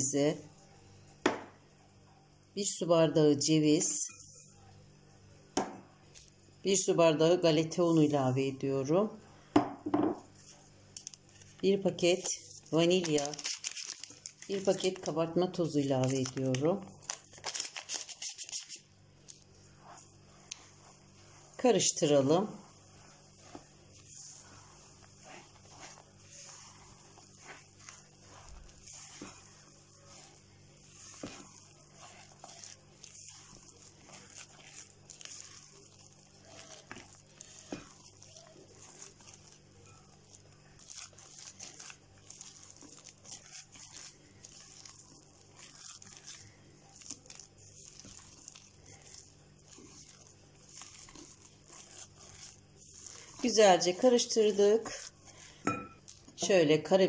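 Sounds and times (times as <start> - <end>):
spatula scraping batter in bowl: 14.4 - 57.0.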